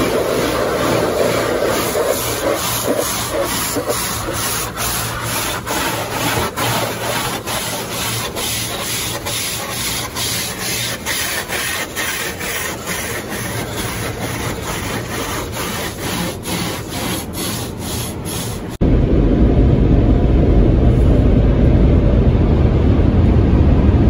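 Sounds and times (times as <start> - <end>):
car-wash brushes scrubbing: 0.0 - 18.8.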